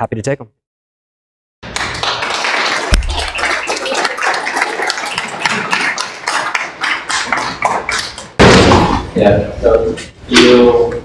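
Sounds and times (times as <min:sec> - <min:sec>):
audience clapping: 0:01.6 - 0:08.4.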